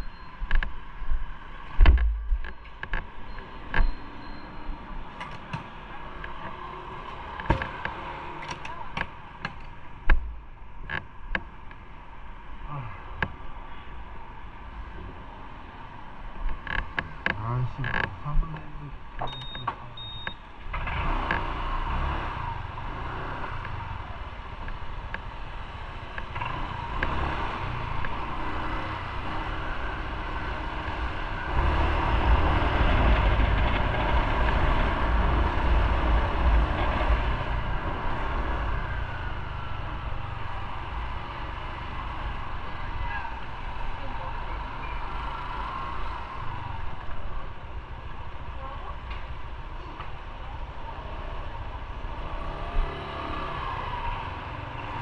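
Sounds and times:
road and wind noise: 0:00.0 - 0:55.0
short high beeps: 0:03.3 - 0:04.8.

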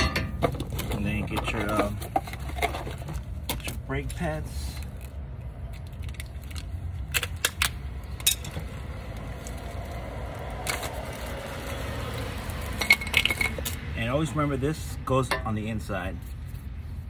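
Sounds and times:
clicks and rustles of packaging: 0:00.4 - 0:10.0, 0:10.6 - 0:11.4.

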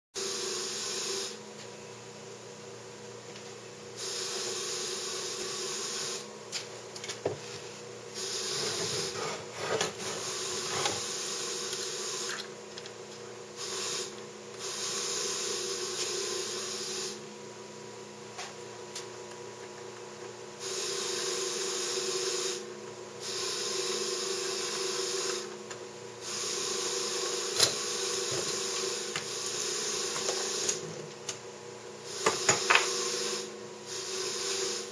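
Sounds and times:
hissing mechanical run: 0:08.2 - 0:12.5.

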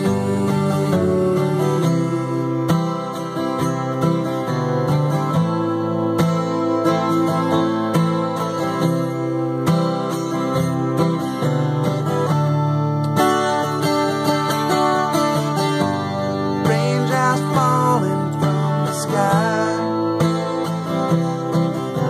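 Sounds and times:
man singing: 0:00.0 - 0:03.6, 0:16.5 - 0:20.8
acoustic guitar strummed: 0:00.0 - 0:22.0.

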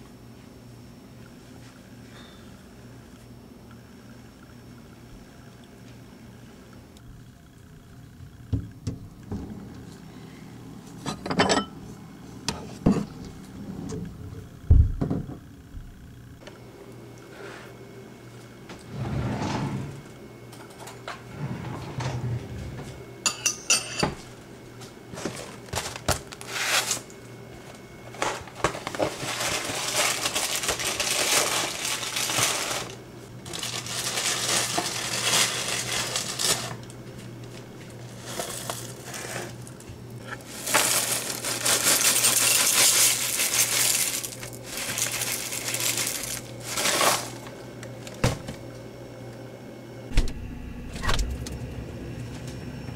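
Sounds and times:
drawer opening: 0:18.8 - 0:20.1, 0:21.1 - 0:23.0, 0:50.1 - 0:51.6
cereal box rustling: 0:28.2 - 0:36.9, 0:40.4 - 0:48.2
cereal flakes pouring into bowl: 0:29.2 - 0:36.8, 0:40.5 - 0:47.4.

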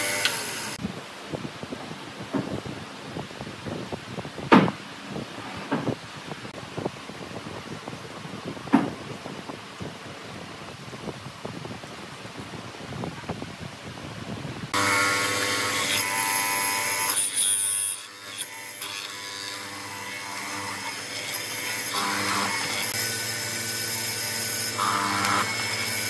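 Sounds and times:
mortising machine whining: 0:14.8 - 0:26.0.

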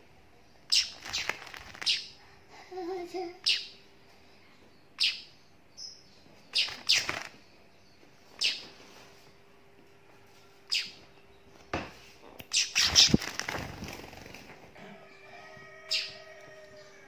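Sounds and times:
bird chirping: 0:00.4 - 0:02.2, 0:03.4 - 0:09.0, 0:10.6 - 0:14.3, 0:15.8 - 0:17.0.

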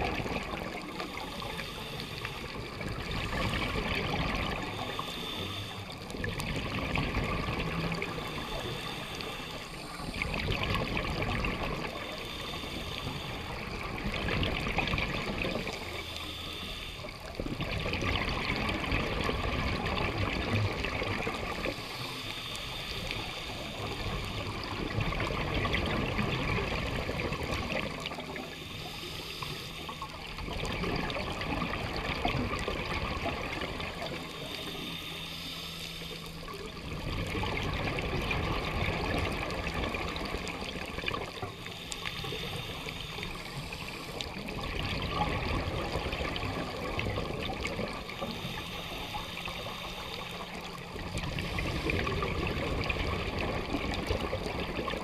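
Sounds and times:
diver breathing through regulator: 0:00.5 - 0:06.9, 0:07.6 - 0:14.6, 0:15.2 - 0:17.3, 0:21.3 - 0:25.0, 0:27.4 - 0:30.4, 0:33.8 - 0:37.1, 0:39.8 - 0:53.7.

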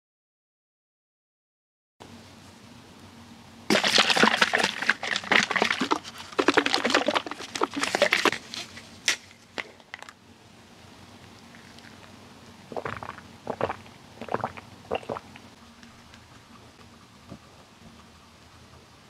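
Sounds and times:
liquid sloshing in plastic bottle: 0:03.7 - 0:10.1, 0:12.7 - 0:15.4.

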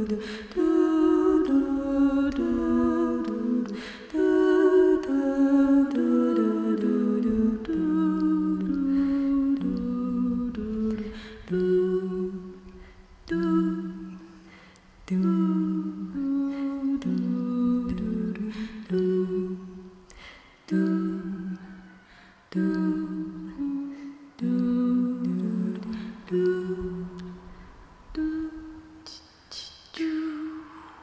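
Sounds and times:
women singing a cappella: 0:00.0 - 0:31.0.

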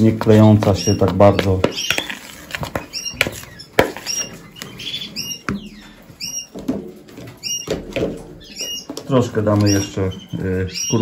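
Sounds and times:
food stirred in a bowl: 0:00.0 - 0:05.6
canaries chirping: 0:00.0 - 0:11.0.

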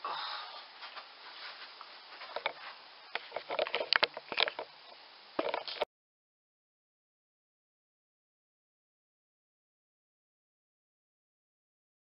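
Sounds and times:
faint rustling: 0:00.1 - 0:05.9
sharp clicks and knocks: 0:02.3 - 0:04.7, 0:05.4 - 0:05.9.

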